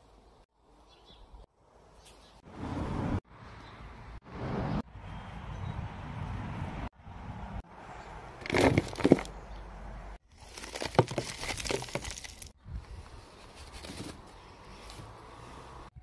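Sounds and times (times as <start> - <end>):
substrate pouring crunching rustle: 10.4 - 12.5.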